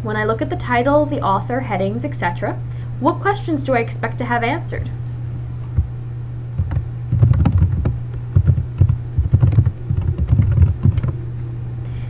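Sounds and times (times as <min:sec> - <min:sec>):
low electrical hum: 0:00.0 - 0:12.0
computer keyboard typing: 0:06.6 - 0:11.2.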